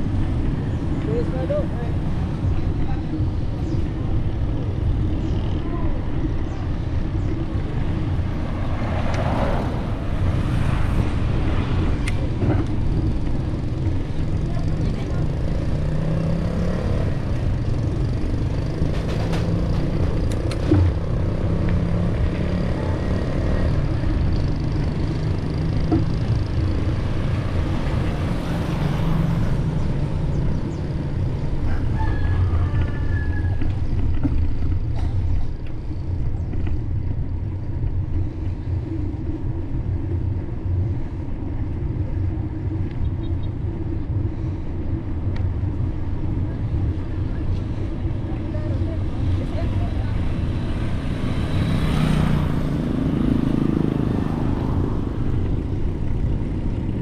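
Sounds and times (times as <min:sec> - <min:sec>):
low road rumble: 0:00.0 - 0:57.0
rooster crowing: 0:31.6 - 0:34.0.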